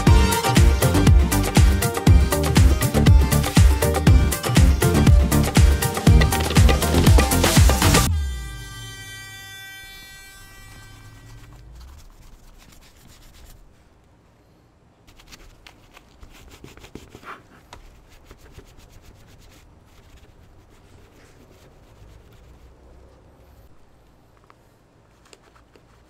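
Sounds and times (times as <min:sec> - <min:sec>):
abrasive pad sanding metal: 0:00.0 - 0:13.7, 0:18.0 - 0:22.7.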